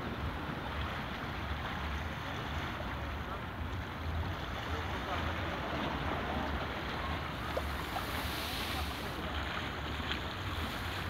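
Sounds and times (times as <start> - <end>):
small waves lapping against rocks: 0.0 - 11.0
wind rumbling on microphone: 5.3 - 11.0.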